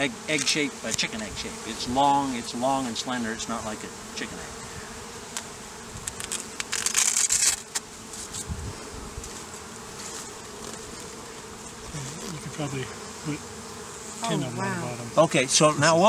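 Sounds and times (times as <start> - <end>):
honeybees humming: 0.0 - 16.0
clicks and scraping: 5.4 - 8.4.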